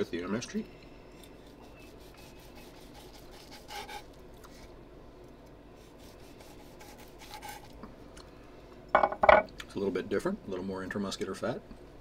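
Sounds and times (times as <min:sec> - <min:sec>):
knife sawing through steak: 0:01.8 - 0:04.1, 0:05.8 - 0:07.7.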